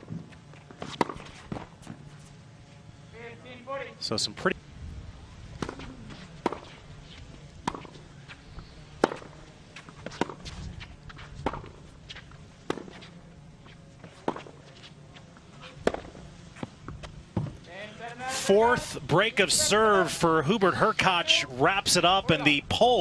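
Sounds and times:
tennis ball hit by racket: 0.8 - 1.6, 7.6 - 8.0, 9.0 - 10.6, 15.8 - 16.7.

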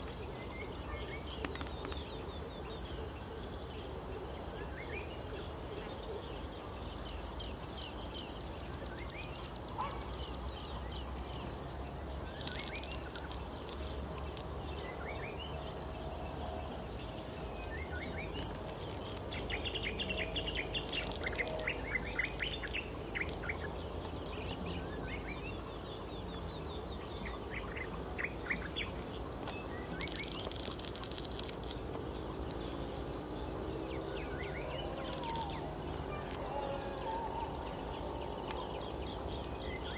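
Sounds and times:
birds chirping and trilling: 0.0 - 39.9
steady insect drone: 0.0 - 39.9.

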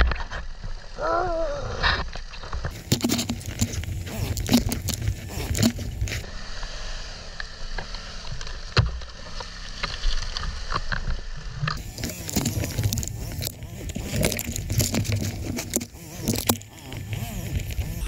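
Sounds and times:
knocks rattles and scrapes: 2.4 - 6.2, 11.7 - 18.0
motorcycle engine rumble: 2.7 - 6.3, 11.8 - 18.0.

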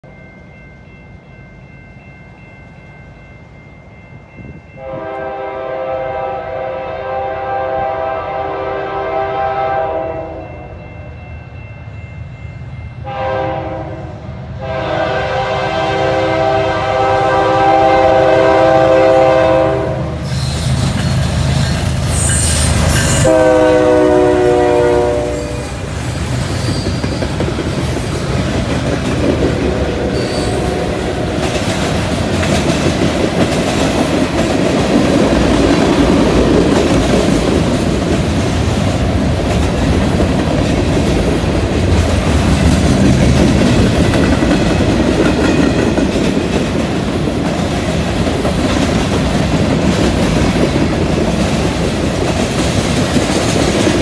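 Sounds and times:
locomotive air horn blasts: 4.8 - 10.7, 13.0 - 20.3, 23.0 - 25.9, 29.8 - 31.4
locomotives rumbling past: 20.1 - 54.0
freight cars clickety-clack: 26.1 - 30.0, 31.1 - 54.0.

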